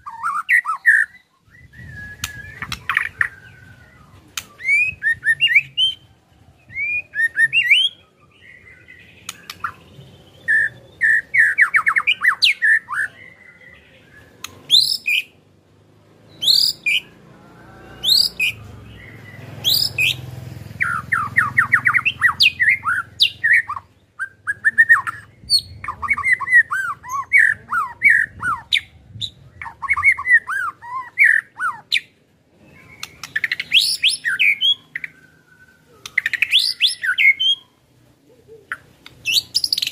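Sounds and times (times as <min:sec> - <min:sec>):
bird singing whistled song: 0:00.0 - 0:06.0, 0:06.6 - 0:15.4, 0:16.3 - 0:17.1, 0:17.7 - 0:20.2, 0:20.8 - 0:37.8, 0:38.7 - 0:39.9
rapid rattling bird trills: 0:17.9 - 0:23.8.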